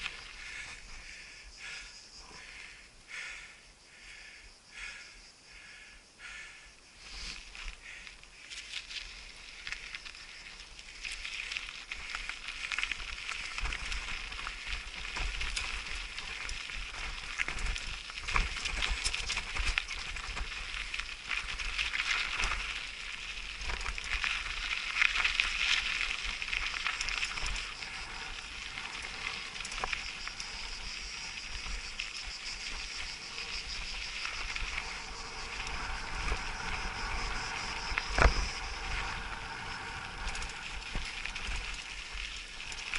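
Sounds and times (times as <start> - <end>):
bike rattling: 0.0 - 3.3, 7.1 - 42.9
tyres crunching on gravel: 7.1 - 42.9
low rumble: 34.4 - 42.3.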